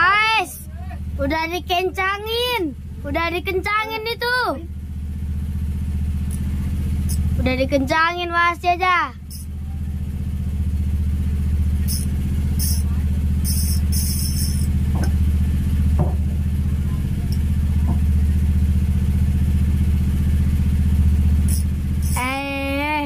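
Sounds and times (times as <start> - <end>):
low engine drone: 0.0 - 23.0
fishing reel drag buzzing: 9.3 - 9.5, 11.9 - 14.8, 21.4 - 22.6.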